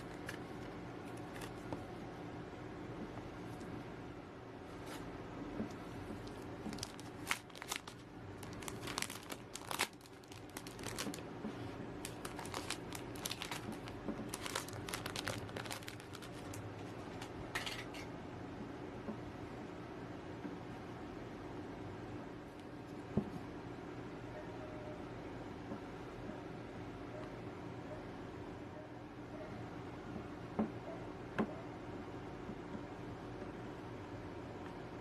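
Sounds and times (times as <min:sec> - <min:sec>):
plastic sleeve crinkling: 0:00.0 - 0:01.8, 0:05.7 - 0:17.3
faint low hum: 0:00.0 - 0:35.0.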